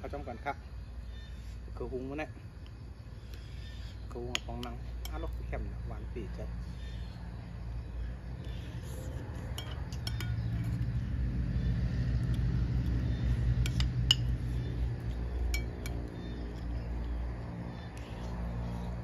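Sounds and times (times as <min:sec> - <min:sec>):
spoon clinking on ceramic bowl: 0:09.6 - 0:10.6, 0:15.4 - 0:16.0.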